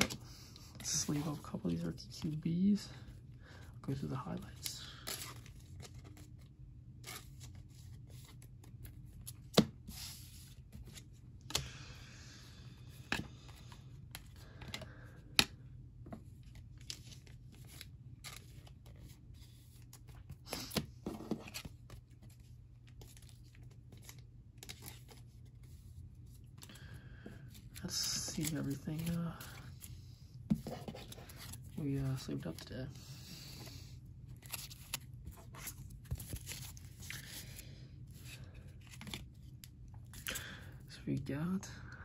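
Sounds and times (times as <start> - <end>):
plastic sleeves rustling: 27.4 - 40.4.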